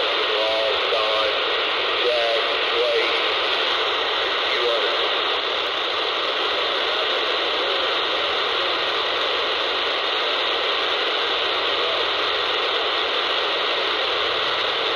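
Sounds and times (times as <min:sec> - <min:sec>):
radio static hiss: 0:00.0 - 0:14.9.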